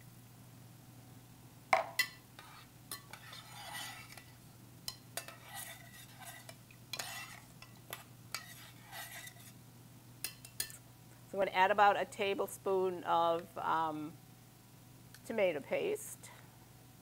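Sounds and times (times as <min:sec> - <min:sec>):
spoon scraping saucepan: 0:02.0 - 0:09.6
spoon clinking against pot: 0:10.2 - 0:10.8.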